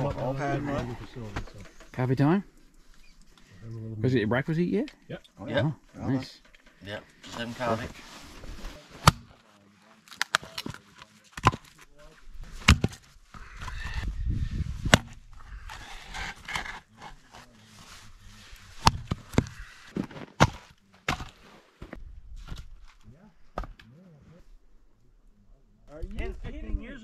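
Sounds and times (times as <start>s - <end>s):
hatchet splitting firewood: 9.0s - 9.3s, 10.1s - 10.8s, 11.4s - 11.8s, 12.5s - 13.7s, 14.8s - 17.4s, 18.6s - 22.8s.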